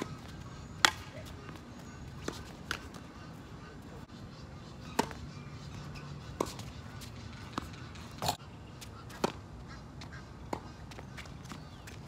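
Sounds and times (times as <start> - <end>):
tennis ball struck by rackets: 0.8 - 1.2, 5.0 - 5.2, 9.2 - 9.4.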